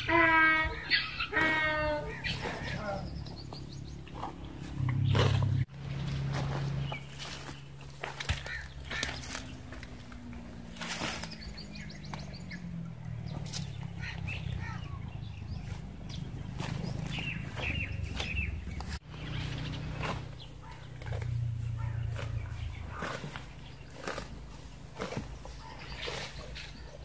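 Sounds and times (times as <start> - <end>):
birds calling: 0.0 - 27.0
buffalo tearing grass: 3.9 - 27.0.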